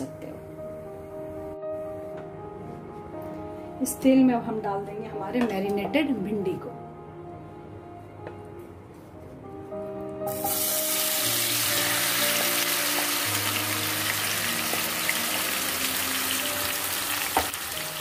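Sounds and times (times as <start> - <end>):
background music: 0.0 - 18.0
okra sizzling in hot oil: 10.3 - 18.0.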